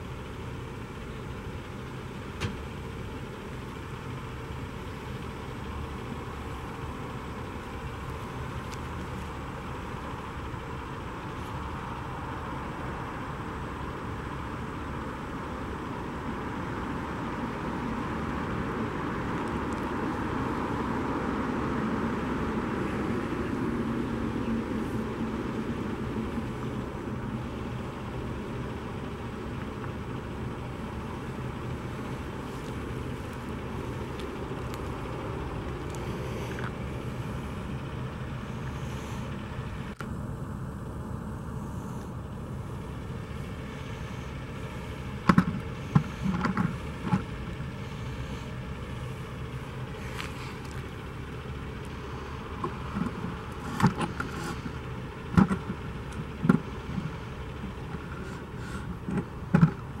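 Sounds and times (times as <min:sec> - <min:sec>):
vehicle rumble: 0:00.0 - 1:00.0.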